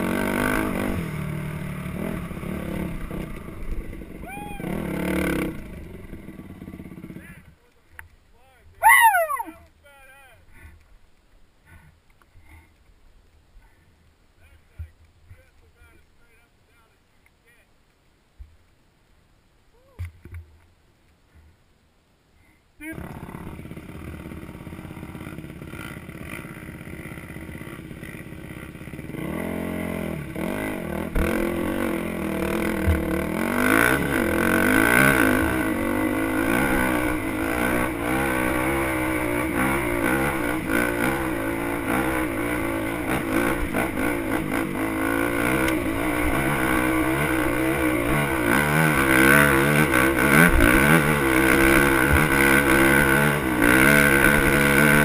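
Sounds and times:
dirt bike engine revving: 0:00.0 - 0:07.3, 0:08.8 - 0:09.5, 0:23.0 - 0:55.0.

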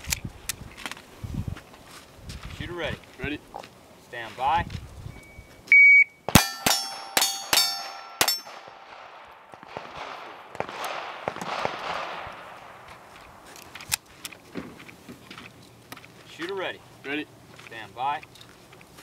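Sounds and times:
shot timer beep: 0:05.2 - 0:08.3
steel target plate ringing: 0:06.3 - 0:08.9
pistol shots: 0:06.3 - 0:13.4.

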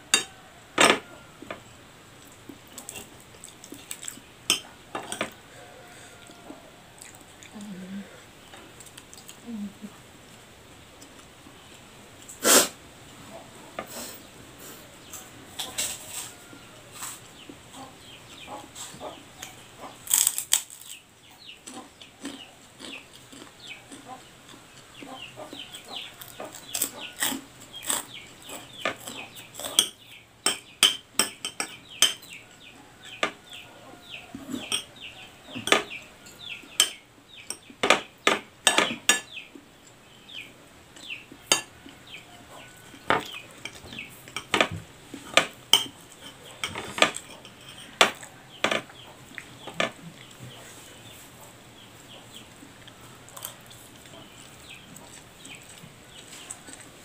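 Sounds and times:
chickens clucking: 0:00.0 - 0:10.4, 0:11.1 - 0:57.0
cutlery clinking on a plate: 0:00.1 - 0:01.6, 0:04.0 - 0:05.4, 0:26.2 - 0:32.4, 0:34.5 - 0:35.0, 0:35.6 - 0:39.4, 0:41.5 - 0:41.8, 0:43.0 - 0:48.9.

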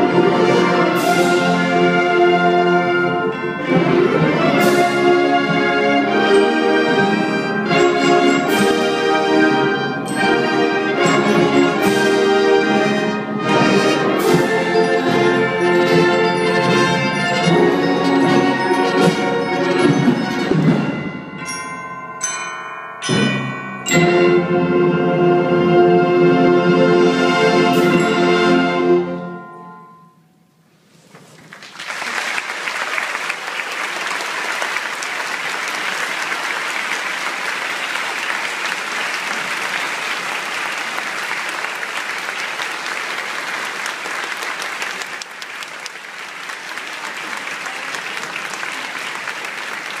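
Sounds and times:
audience applause: 0:31.2 - 0:50.0.

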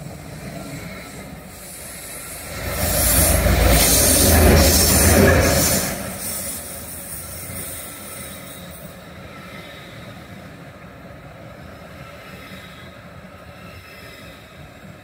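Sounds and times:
diesel locomotive rumbling past: 0:00.0 - 0:09.4.

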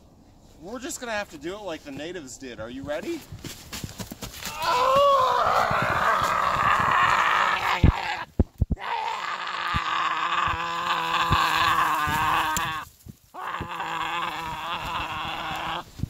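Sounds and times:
man making growling noises: 0:05.7 - 0:12.8, 0:13.4 - 0:15.9.

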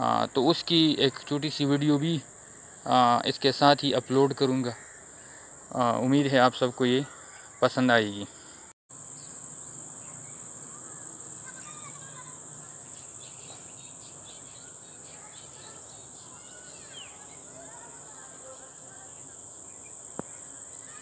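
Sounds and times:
insects chirring: 0:00.0 - 0:21.0
bird chirps and calls: 0:09.1 - 0:21.0.

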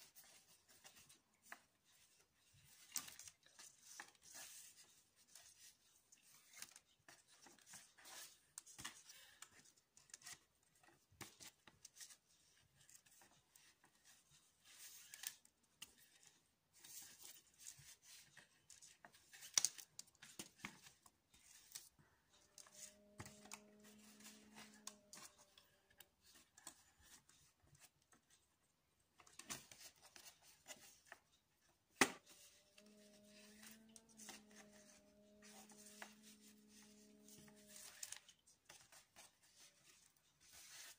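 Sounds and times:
cord rustling and rubbing: 0:00.0 - 0:28.6, 0:29.2 - 0:40.9
faint low hum: 0:32.3 - 0:40.2.

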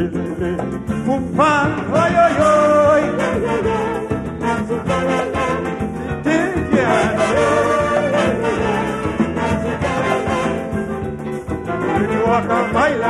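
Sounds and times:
calypso band playing: 0:00.0 - 0:13.0.

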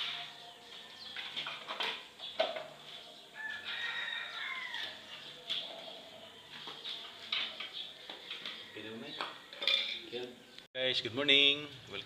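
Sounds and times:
rooster crowing: 0:03.4 - 0:05.2.

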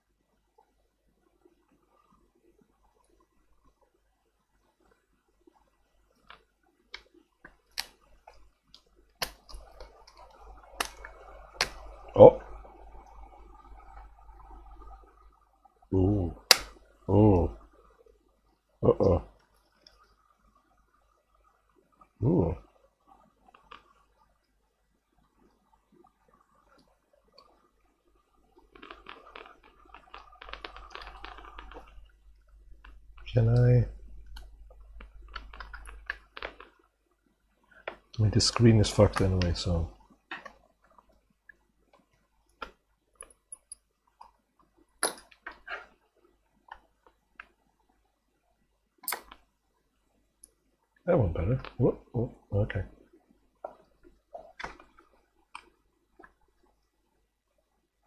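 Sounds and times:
plastic parts clicking and crackling: 0:28.7 - 0:36.8.

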